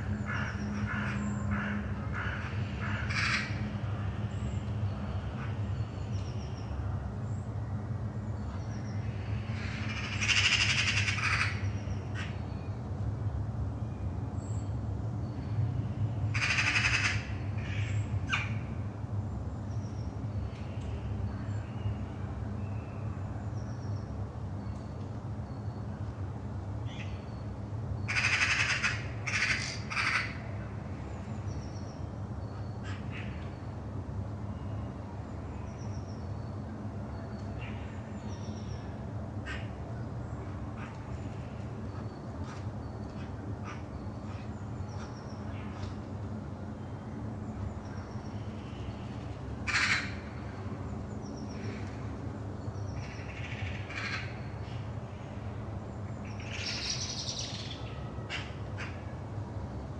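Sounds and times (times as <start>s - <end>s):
distant aircraft engines drone: 0.0s - 59.9s
crows cawing: 0.2s - 3.6s, 9.9s - 11.6s, 16.3s - 18.6s, 28.1s - 30.7s, 49.6s - 50.4s, 53.0s - 54.4s.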